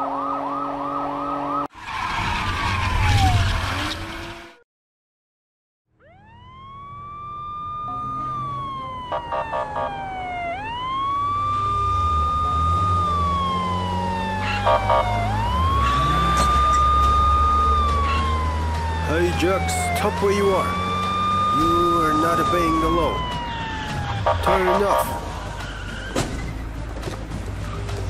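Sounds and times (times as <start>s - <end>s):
police siren wailing: 0.0s - 1.7s, 2.4s - 3.9s, 5.9s - 26.2s
rapid siren blips: 0.0s - 1.7s, 2.4s - 4.1s, 5.9s - 26.1s
car engine noise: 6.0s - 28.0s.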